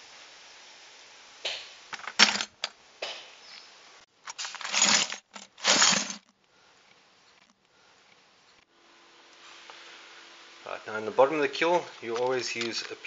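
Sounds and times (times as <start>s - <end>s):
broken glass clattering into bucket: 4.3s - 6.3s.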